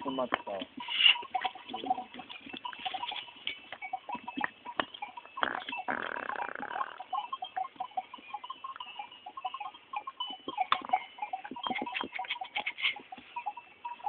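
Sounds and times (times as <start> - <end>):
goats calling: 0.0 - 14.0
scattered clicks: 9.6 - 13.3.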